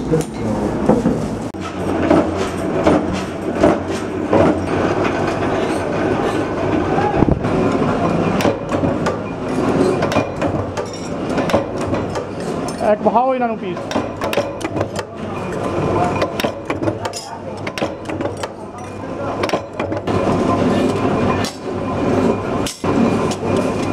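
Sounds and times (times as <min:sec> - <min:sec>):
press strokes clattering: 0:07.5 - 0:20.2.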